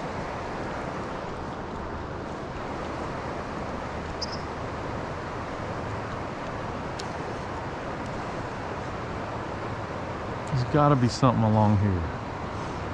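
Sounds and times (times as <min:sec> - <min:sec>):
flowing river water: 0:00.0 - 0:12.9
short high chirp: 0:04.2 - 0:04.5.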